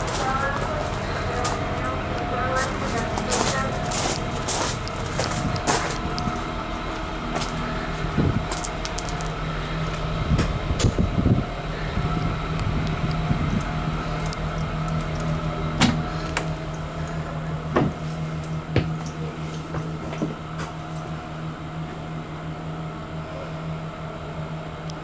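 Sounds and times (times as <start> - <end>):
footsteps and bumps: 0.0 - 11.1, 17.7 - 20.8
low machine hum: 0.0 - 25.0.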